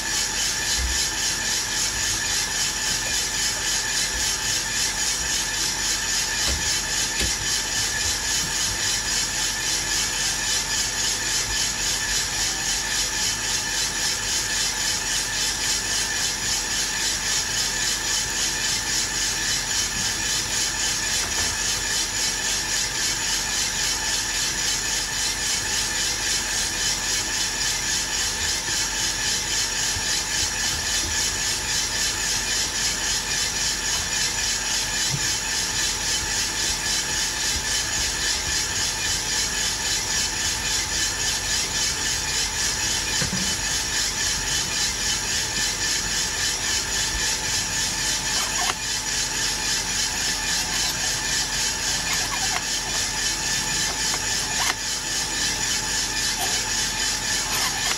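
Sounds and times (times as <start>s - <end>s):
steady fan rush: 0.0s - 57.9s
coffee beans tumbling in drum: 41.4s - 57.9s.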